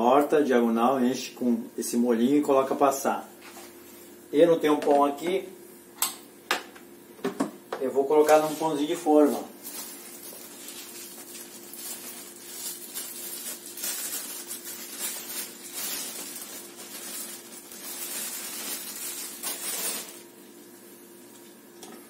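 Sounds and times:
plastic bread bag rustling: 8.0s - 20.5s.

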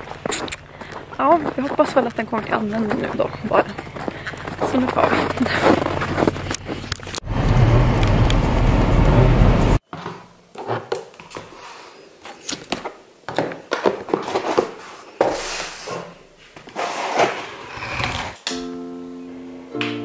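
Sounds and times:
car cabin road rumble: 0.0s - 9.8s
cardboard box rustling: 13.6s - 15.1s.

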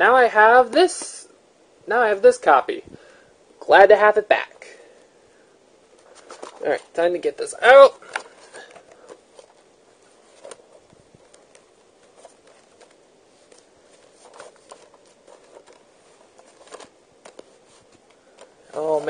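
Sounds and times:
packaging rustling: 5.9s - 7.0s, 7.8s - 19.0s.

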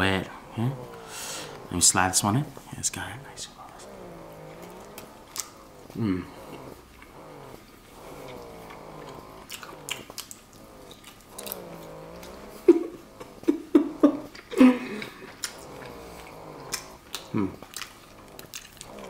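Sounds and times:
person humming mmm: 3.6s - 7.5s, 11.4s - 17.8s
person chewing with mouth clicks: 3.6s - 19.0s.

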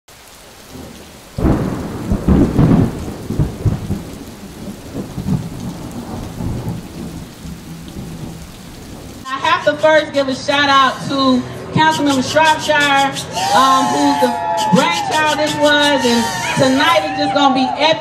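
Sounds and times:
rain falling: 0.1s - 9.3s
thunder clap rumbling: 0.4s - 9.3s.

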